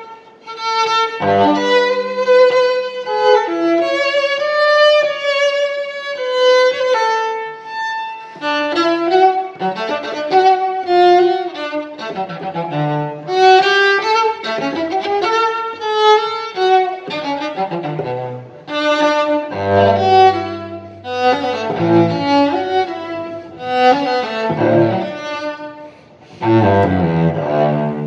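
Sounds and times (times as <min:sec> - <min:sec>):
bowed cello melody: 0:00.0 - 0:28.0.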